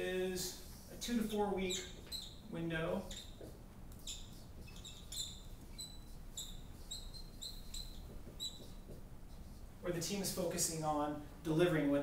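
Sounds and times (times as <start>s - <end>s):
marker squeaking on whiteboard: 0.8s - 10.1s.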